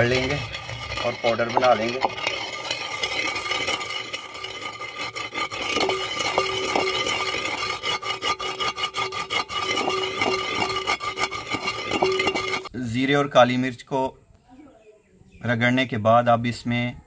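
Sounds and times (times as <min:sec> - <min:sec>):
spices ground by hand scraping: 0:00.0 - 0:12.7.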